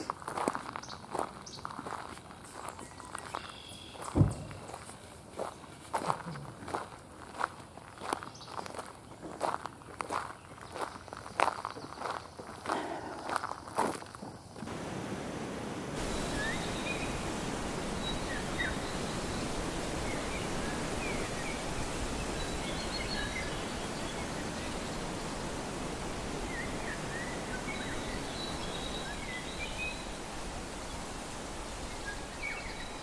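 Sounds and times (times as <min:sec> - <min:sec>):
small birds chirping: 0:00.8 - 0:05.0, 0:16.0 - 0:33.0
steady rushing background noise: 0:14.6 - 0:32.9.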